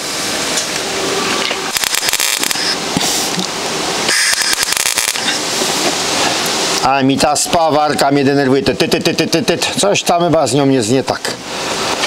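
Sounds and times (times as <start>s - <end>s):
welder arc crackling: 1.5s - 6.9s.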